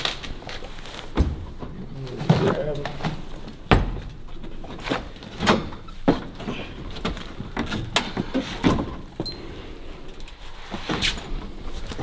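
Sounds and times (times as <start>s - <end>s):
knocks and thumps: 1.1s - 9.3s.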